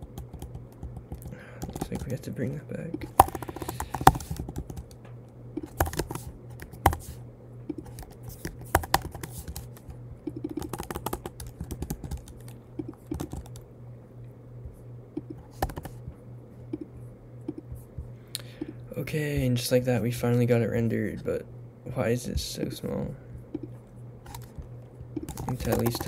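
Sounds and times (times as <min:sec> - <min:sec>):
computer keyboard typing: 0:00.0 - 0:02.2, 0:03.0 - 0:05.0, 0:05.6 - 0:13.6, 0:15.2 - 0:16.0, 0:24.3 - 0:26.0
steady low hum: 0:00.0 - 0:26.0.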